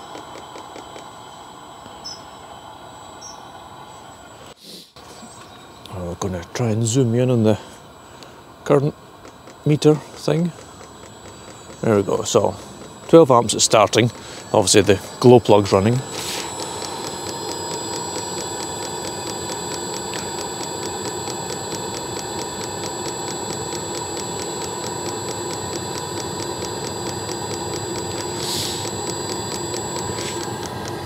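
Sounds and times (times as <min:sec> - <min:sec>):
fuel pump fast ticking: 0:00.0 - 0:01.1, 0:09.2 - 0:31.0
fan whirring: 0:00.0 - 0:04.6, 0:05.3 - 0:31.0
short hiss: 0:04.4 - 0:05.3, 0:15.9 - 0:18.4, 0:27.5 - 0:29.1.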